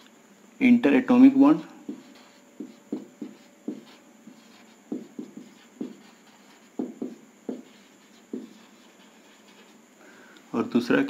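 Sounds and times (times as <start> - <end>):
marker pen writing on whiteboard: 1.6 - 9.8.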